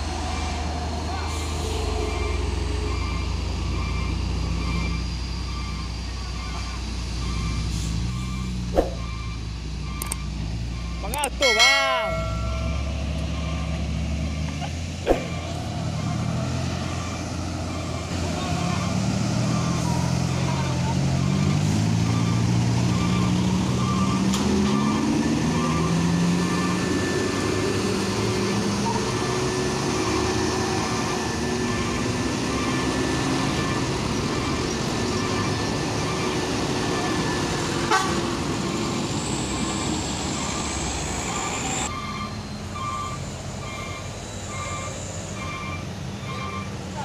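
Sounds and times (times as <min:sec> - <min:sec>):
diesel truck engines: 0:00.0 - 0:47.0
reversing alarm beeps: 0:02.1 - 0:11.2, 0:12.0 - 0:14.7, 0:22.0 - 0:27.6, 0:31.0 - 0:37.3, 0:38.7 - 0:46.7.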